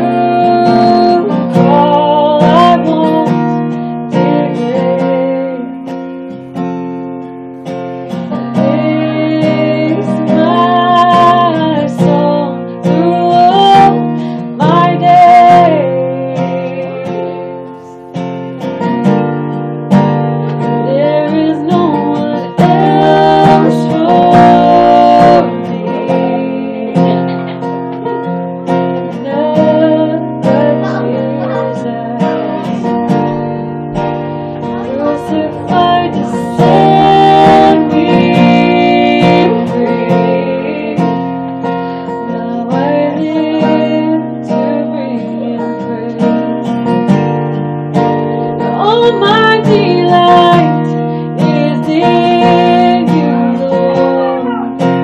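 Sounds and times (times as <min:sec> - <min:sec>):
woman singing worship song: 0:00.0 - 0:05.9, 0:08.1 - 0:18.1, 0:20.7 - 0:27.6, 0:29.0 - 0:33.3, 0:34.6 - 0:47.1, 0:48.6 - 0:55.0
acoustic guitar strumming: 0:00.0 - 0:55.0.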